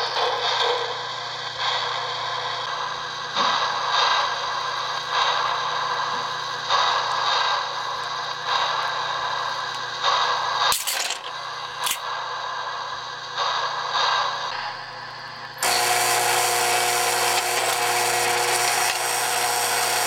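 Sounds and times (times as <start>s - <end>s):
steady hum: 0.0s - 20.0s
mechanism buzzing and rattling: 10.7s - 12.0s, 15.6s - 20.0s.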